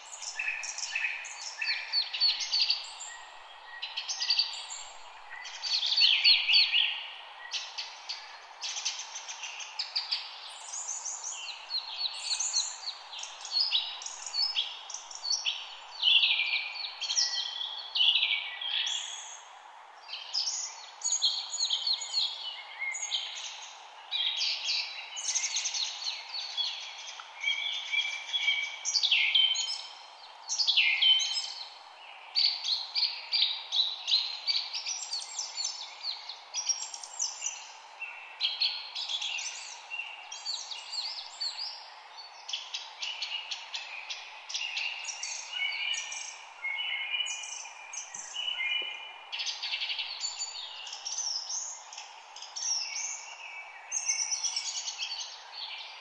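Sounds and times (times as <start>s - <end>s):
faint background hiss: 0.0s - 56.0s
songbirds singing and chirping: 0.0s - 56.0s.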